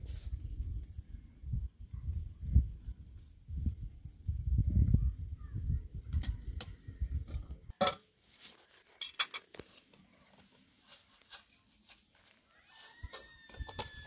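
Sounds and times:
clinks and taps of tea things: 9.0s - 9.5s.

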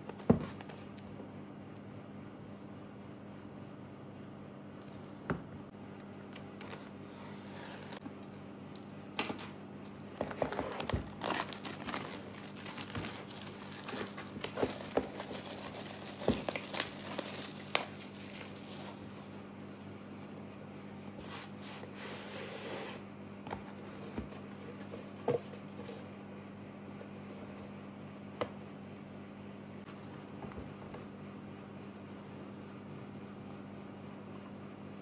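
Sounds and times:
plastic wrap crinkling: 10.3s - 19.4s.

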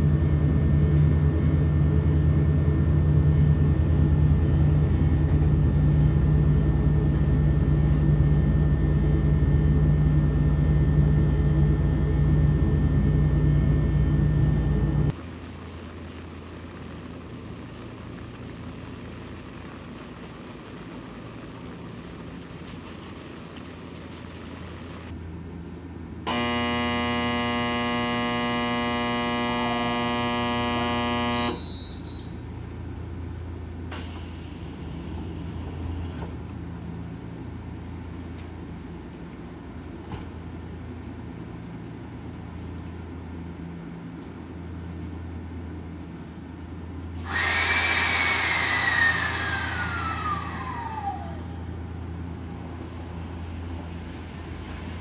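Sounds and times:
low hum: 0.0s - 33.9s, 40.4s - 55.0s
electric buzzer: 26.3s - 31.9s
air release with falling whistle: 31.4s - 32.5s, 47.2s - 53.0s.

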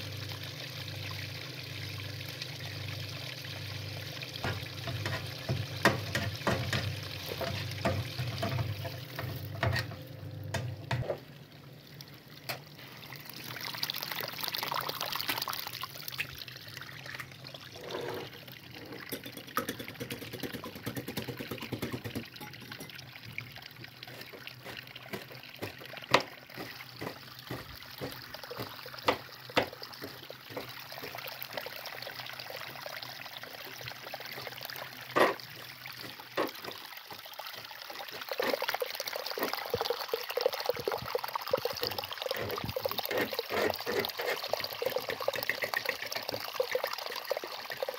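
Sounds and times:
spatula scraping frying pan: 6.1s - 10.0s.

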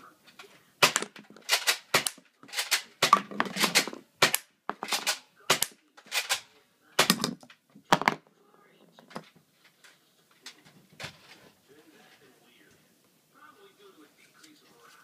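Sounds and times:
air gun firing: 0.8s - 6.4s.

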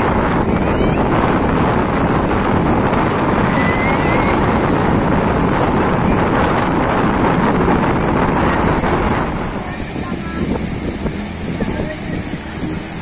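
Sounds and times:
ocean surf breaking: 0.0s - 13.0s
wind buffeting microphone: 0.0s - 13.0s.

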